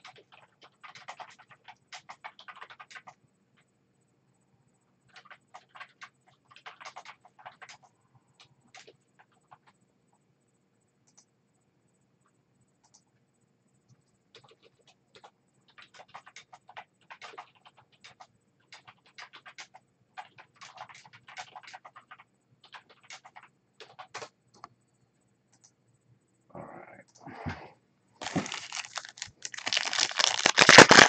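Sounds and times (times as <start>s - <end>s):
plastic packaging crinkling: 28.2s - 31.0s.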